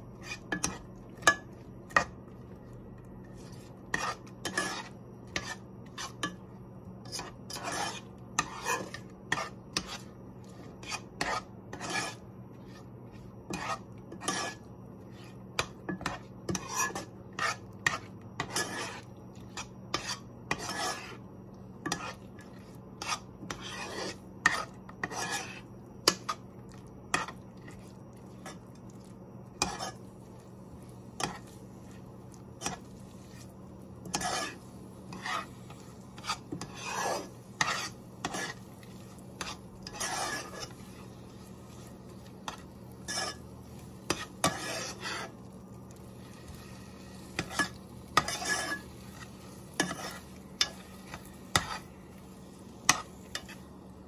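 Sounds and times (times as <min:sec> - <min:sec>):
metal spoon scraping a pot: 0:00.2 - 0:02.1, 0:03.4 - 0:06.4, 0:07.0 - 0:21.2, 0:21.8 - 0:26.4, 0:27.1 - 0:28.6, 0:29.6 - 0:30.0, 0:31.2 - 0:32.0, 0:32.6 - 0:45.4, 0:46.3 - 0:51.9, 0:52.8 - 0:53.6.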